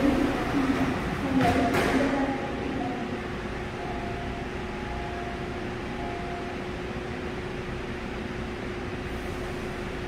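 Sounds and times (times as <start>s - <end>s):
electric train humming: 0.0s - 10.0s
faint steady tone: 3.7s - 6.8s.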